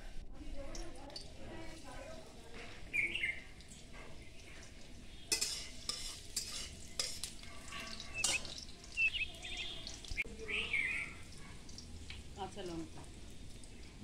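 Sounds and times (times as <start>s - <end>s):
garlic sizzling in hot oil: 0.4s - 14.0s
metal spatula scraping pan: 5.2s - 8.6s.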